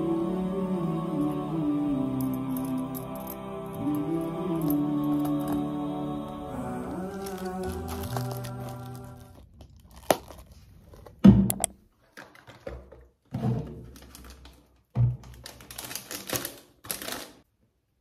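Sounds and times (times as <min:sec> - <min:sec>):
vocal music: 0:00.0 - 0:09.4
plastic crinkling: 0:07.1 - 0:11.2, 0:13.8 - 0:17.5.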